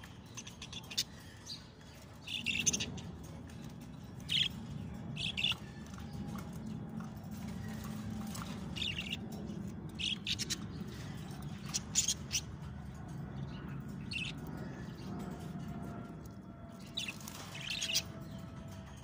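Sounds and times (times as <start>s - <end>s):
low hum: 0.0s - 19.0s
budgerigars chirping: 5.2s - 6.0s, 8.4s - 9.2s, 10.0s - 10.6s, 11.6s - 12.5s, 14.0s - 14.4s.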